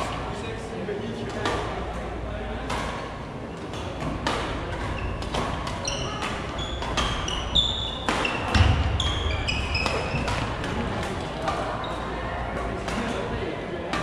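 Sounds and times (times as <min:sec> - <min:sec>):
racket hitting shuttlecock: 0:02.6 - 0:03.1, 0:03.7 - 0:11.8, 0:12.6 - 0:13.2
sneakers squeaking on wooden floor: 0:04.7 - 0:12.2.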